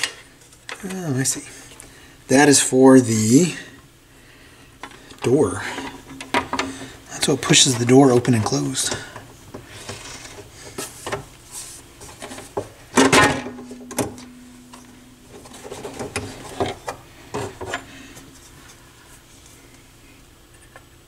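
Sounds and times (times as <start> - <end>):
low ringing tone: 13.4 - 16.6.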